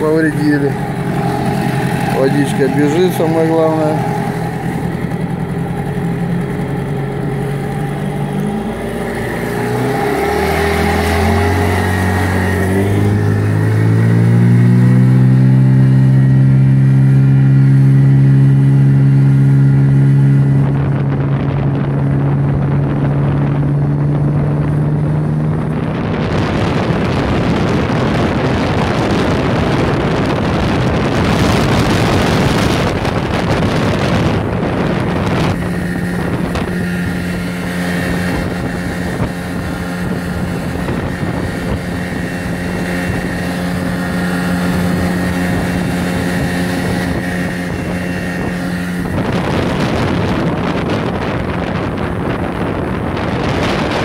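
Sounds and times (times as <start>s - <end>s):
outboard motor running: 0.0s - 54.0s
water rushing past hull: 0.0s - 54.0s
wind on microphone: 0.0s - 54.0s.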